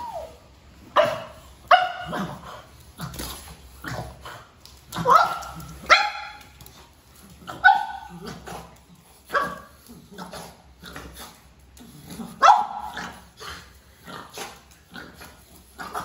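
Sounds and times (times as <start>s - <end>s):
puppy barking: 0.9s - 2.4s, 5.0s - 6.6s, 7.5s - 8.4s, 12.4s - 13.1s.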